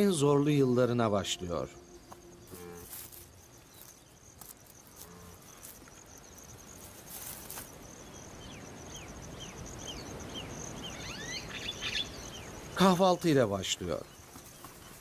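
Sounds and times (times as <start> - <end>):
insects trilling: 0.0 - 15.0
zebra cropping grass: 2.1 - 7.8
bird chirping: 8.0 - 12.9.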